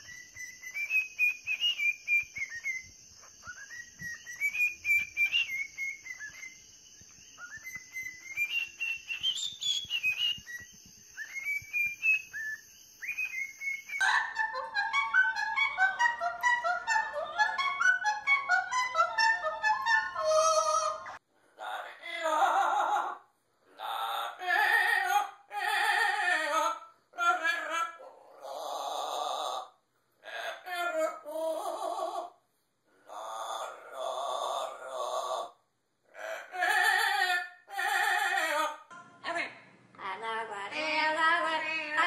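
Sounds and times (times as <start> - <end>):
cockatiel whistling: 0.0 - 21.2.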